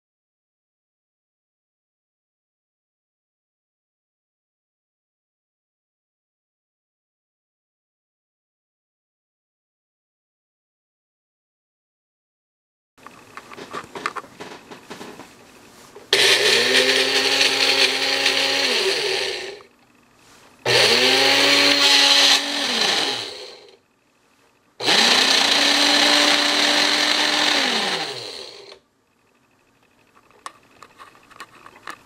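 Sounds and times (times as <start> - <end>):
small electric motor whining: 16.1 - 19.7, 20.6 - 23.8, 24.8 - 28.8.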